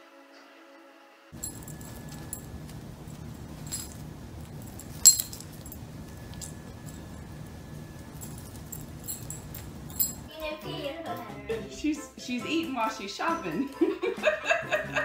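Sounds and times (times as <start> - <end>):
collar tags jingling: 1.4 - 10.3
low background noise: 1.4 - 15.0.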